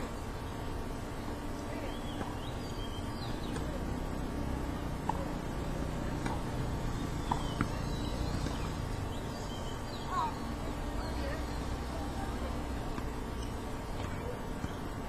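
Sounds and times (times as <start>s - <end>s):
birds chirping faintly: 0.0s - 15.0s
low outdoor rumble: 0.0s - 15.0s
tennis ball knocks: 6.1s - 6.6s.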